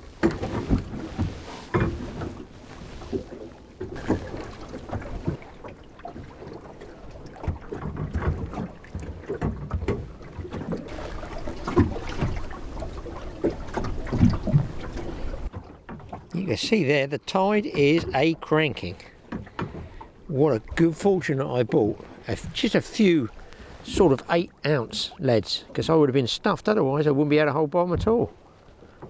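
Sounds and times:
water lapping against boat hull: 0.0 - 29.0.

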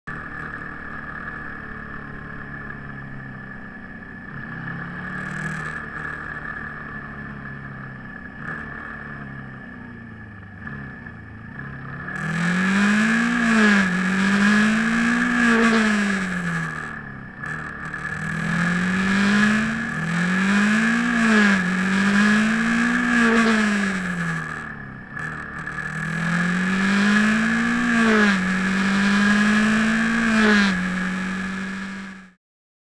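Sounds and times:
motorcycle engine revving: 0.1 - 32.4
steady high whine: 9.8 - 32.4.

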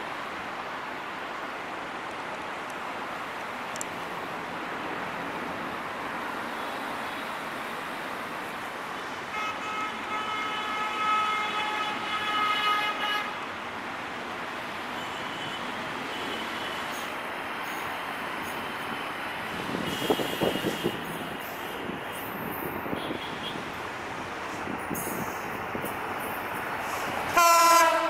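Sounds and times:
locomotive air horn: 9.3 - 13.4, 27.3 - 28.0.

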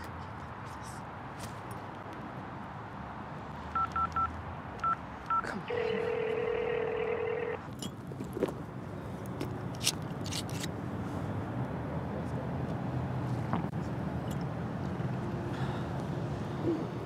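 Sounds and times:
phone keypad beeps: 3.8 - 7.6
phone ringing tone: 3.8 - 7.7.

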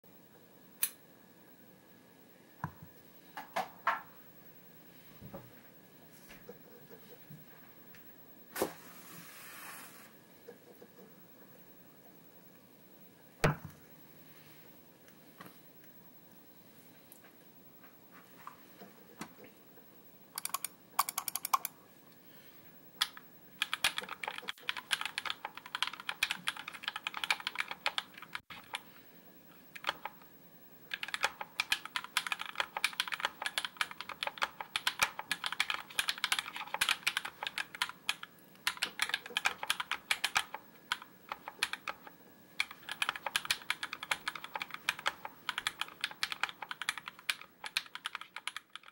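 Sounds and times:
mechanical keyboard typing: 20.4 - 21.7, 23.0 - 28.8, 29.7 - 30.2, 30.9 - 48.9.

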